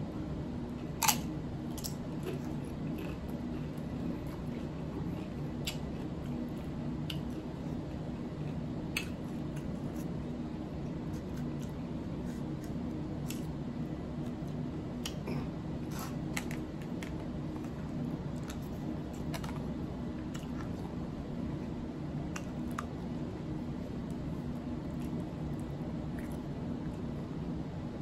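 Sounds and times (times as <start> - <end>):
steady low hum: 0.0 - 28.0
chewing with wet mouth clicks: 1.0 - 7.5, 8.4 - 10.1, 24.9 - 27.0.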